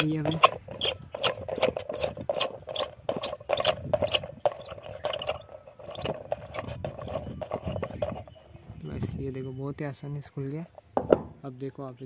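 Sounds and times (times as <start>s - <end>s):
nut turning with scraping clicks: 0.0s - 8.5s.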